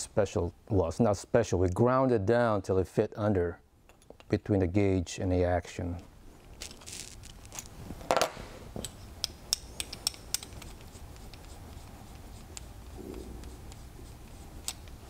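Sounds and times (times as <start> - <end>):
small metal clicks and scraping: 6.4 - 11.6.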